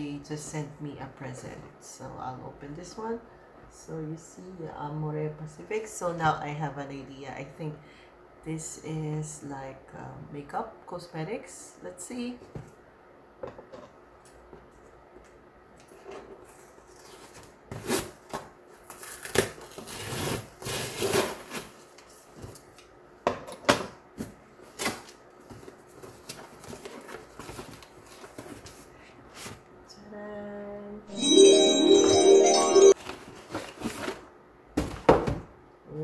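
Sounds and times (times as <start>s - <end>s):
cardboard and paper rustling: 24.8s - 28.9s.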